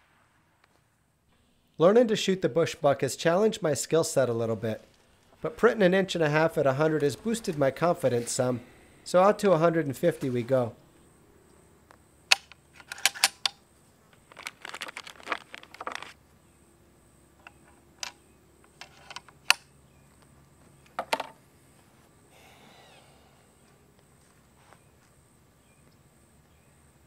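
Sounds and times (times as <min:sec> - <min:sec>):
air rifle metallic clicks and rattles: 0:12.3 - 0:16.2, 0:17.4 - 0:19.7.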